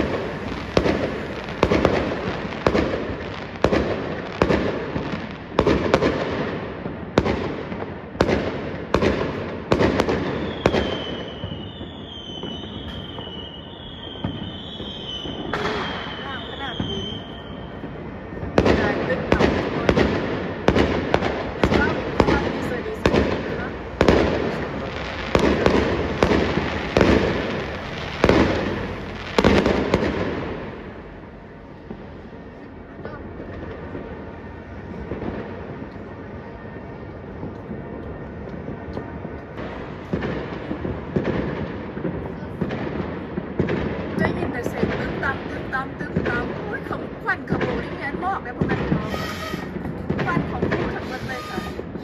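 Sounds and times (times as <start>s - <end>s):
fireworks bangs: 0.0s - 52.0s
high wavering whistle: 10.4s - 18.0s, 49.0s - 49.8s.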